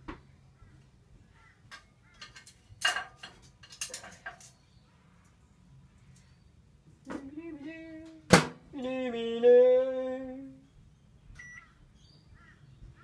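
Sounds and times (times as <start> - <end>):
person humming: 7.1 - 10.6.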